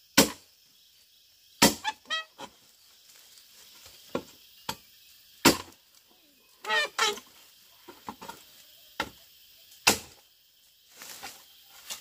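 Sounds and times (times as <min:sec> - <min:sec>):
tool chopping wood: 0:00.1 - 0:00.4, 0:01.6 - 0:02.0, 0:05.4 - 0:05.8, 0:09.8 - 0:10.2
short squeaky calls: 0:01.8 - 0:02.6, 0:06.6 - 0:07.3.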